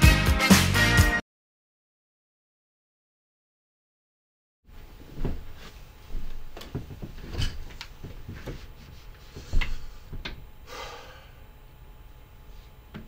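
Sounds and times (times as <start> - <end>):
office chair moved: 4.9 - 8.7
footsteps: 5.0 - 10.4.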